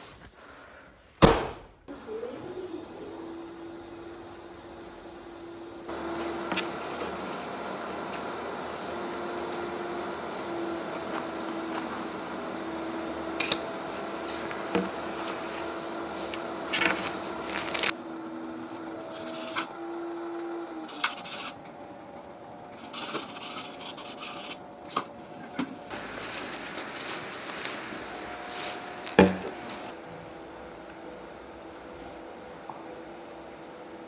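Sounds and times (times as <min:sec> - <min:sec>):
washers and dryers humming: 0:01.9 - 0:34.0.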